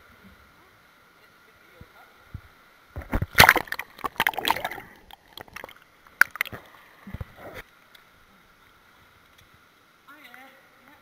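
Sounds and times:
pool water splashing: 3.3 - 7.0.

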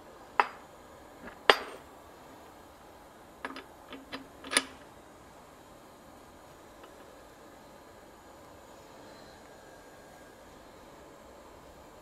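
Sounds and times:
metal tooling clinking: 3.4 - 4.8.

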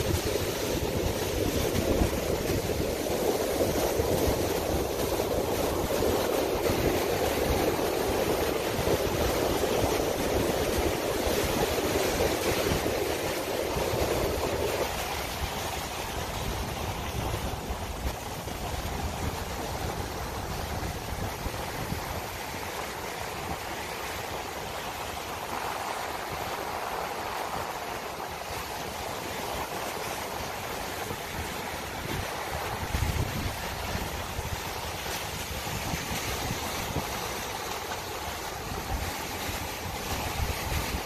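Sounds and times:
ocean surf breaking on rocks: 0.0 - 41.0
wind buffeting microphone: 0.0 - 41.0.

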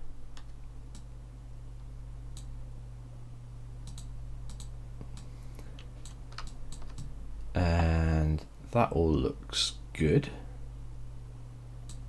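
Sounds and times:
low electrical hum: 0.0 - 12.0
computer input clicks: 3.8 - 4.7.

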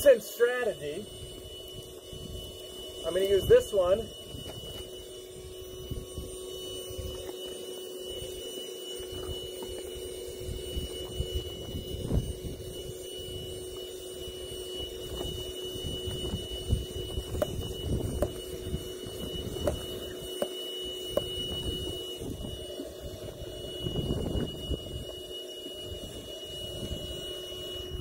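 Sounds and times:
electric air pump humming: 0.0 - 28.0
wind gusting on microphone: 10.4 - 13.6, 15.0 - 19.9, 21.4 - 25.1.

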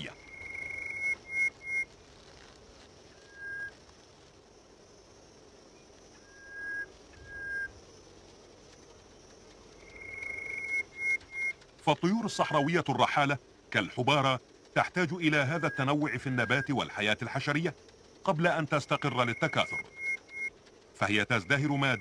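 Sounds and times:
faint background hiss: 0.0 - 22.0
whistled notes: 15.4 - 16.8, 18.8 - 20.5.

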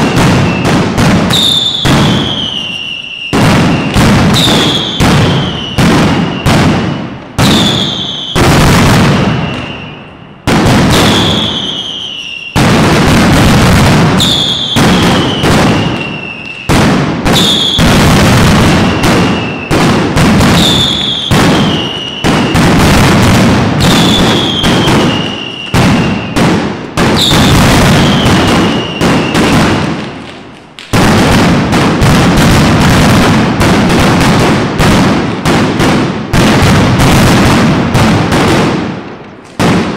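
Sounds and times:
firecrackers banging: 0.0 - 39.9.

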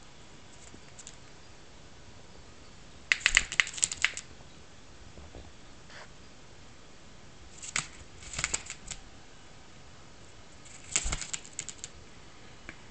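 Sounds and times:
bird beak pecking clicks: 3.1 - 4.3, 7.6 - 9.0.

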